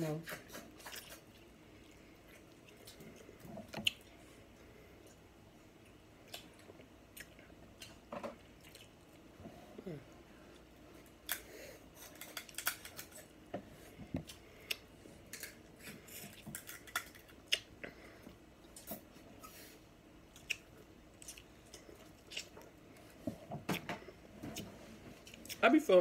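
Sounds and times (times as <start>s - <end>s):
chewing with wet clicks: 0.3s - 4.3s, 5.0s - 9.3s, 10.5s - 13.3s, 14.2s - 15.6s, 16.2s - 19.1s, 20.2s - 23.1s, 24.6s - 25.6s.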